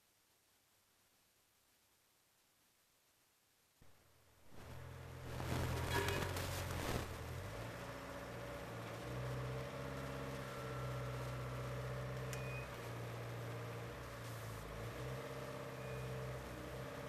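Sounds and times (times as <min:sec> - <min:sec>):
engine running: 0:04.5 - 0:17.0.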